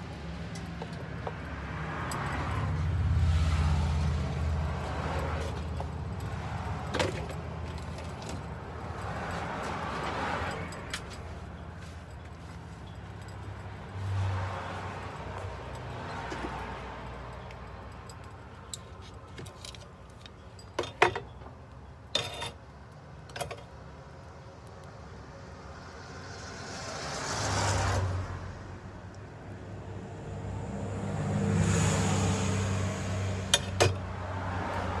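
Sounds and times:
metallic clinks and knocks: 0:10.4 - 0:14.0, 0:15.7 - 0:22.6.

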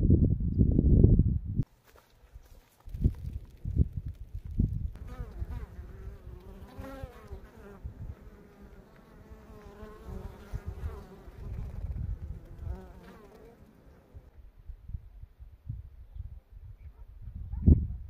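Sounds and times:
wind rumbling on microphone: 0:00.0 - 0:01.6, 0:02.4 - 0:18.0
honeybees buzzing: 0:05.0 - 0:14.3.

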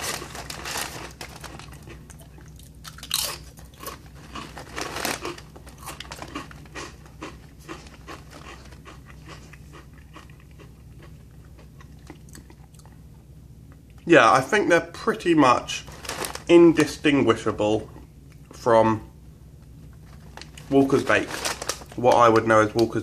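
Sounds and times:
person chewing crisps: 0:00.0 - 0:14.1, 0:19.9 - 0:23.0.

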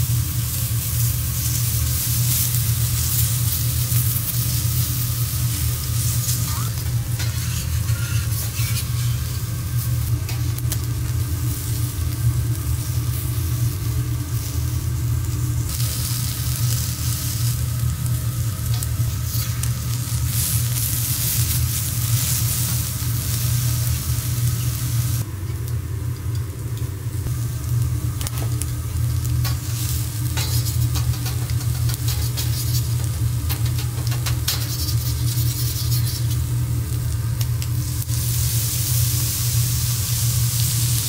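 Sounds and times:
seafood sizzling on griddle: 0:00.0 - 0:25.3, 0:27.2 - 0:41.0
steady low hum: 0:00.0 - 0:41.0.

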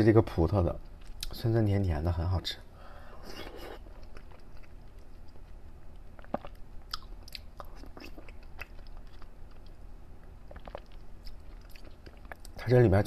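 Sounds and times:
mouth clicks and smacks: 0:00.8 - 0:01.4, 0:03.2 - 0:12.6
wet chewing: 0:03.3 - 0:12.6.

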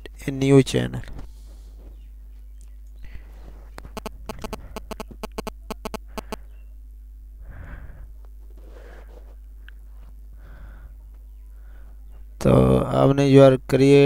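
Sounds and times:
electrical hum: 0:00.0 - 0:14.0
soft breaths: 0:01.1 - 0:04.8, 0:07.3 - 0:12.4
mouse and keyboard clicks: 0:03.8 - 0:06.4.

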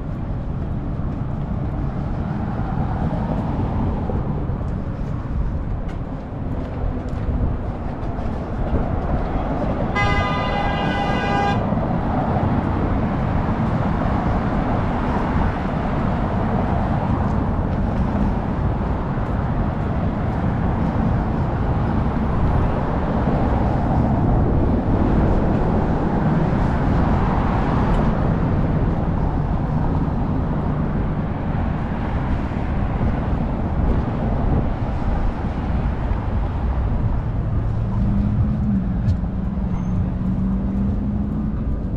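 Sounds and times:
street traffic noise: 0:00.0 - 0:41.9
vehicle horn: 0:09.9 - 0:11.7.

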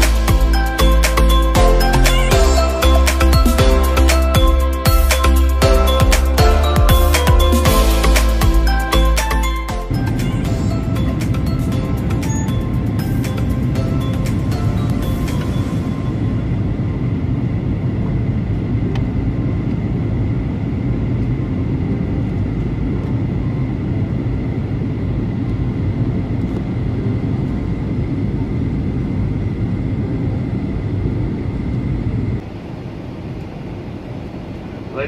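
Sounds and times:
airliner cabin engine rumble: 0:07.1 - 0:35.0.

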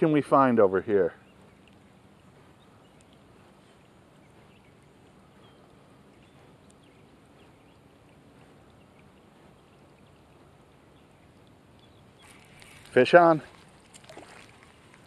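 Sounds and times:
light rain falling on a pond: 0:00.0 - 0:05.2, 0:07.6 - 0:15.0
tiny drop ticks: 0:02.9 - 0:03.2.

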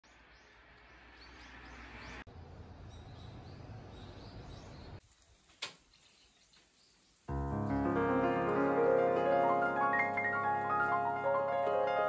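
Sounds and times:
small birds chirping: 0:00.0 - 0:07.3.

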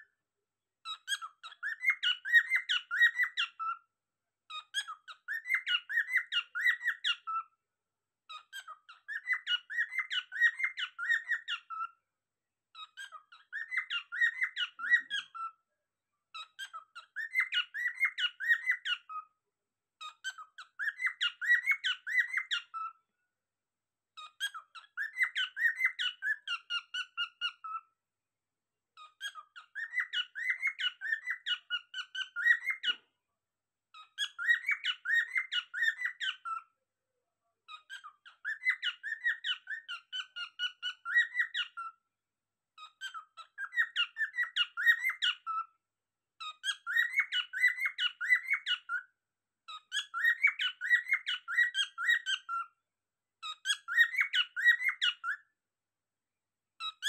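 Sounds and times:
cockatiel whistling: 0:00.9 - 0:03.8, 0:04.5 - 0:07.4, 0:08.5 - 0:11.9, 0:12.8 - 0:15.5, 0:16.4 - 0:19.2, 0:20.0 - 0:22.9, 0:24.4 - 0:27.8, 0:29.2 - 0:33.0, 0:34.0 - 0:36.6, 0:37.7 - 0:41.9, 0:43.0 - 0:45.7, 0:46.4 - 0:49.0, 0:49.7 - 0:52.7, 0:53.4 - 0:55.4.

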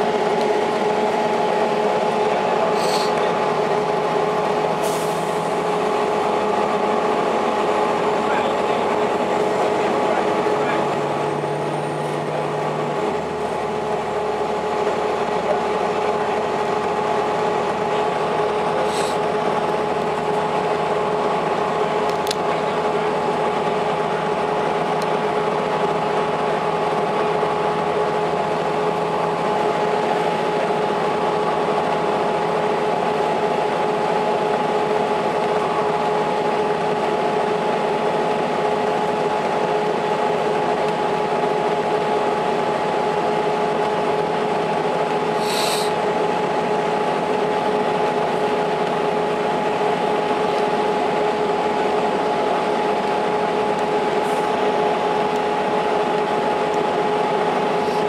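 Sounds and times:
bus engine rumble: 0:00.0 - 0:58.0
constant whine: 0:00.0 - 0:58.0
short air hiss: 0:45.4 - 0:46.0.

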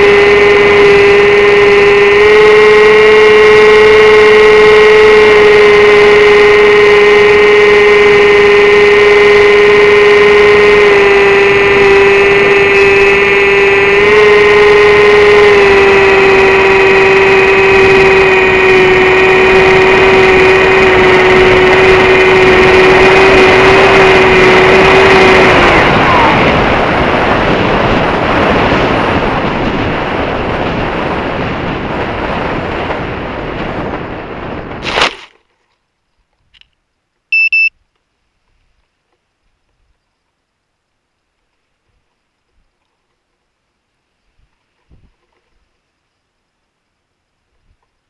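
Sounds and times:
electric motor and propeller whine: 0:00.0 - 0:35.4
rushing wind: 0:00.0 - 0:35.4, 0:44.3 - 0:45.7
short electronic beep: 0:37.3 - 0:37.8.

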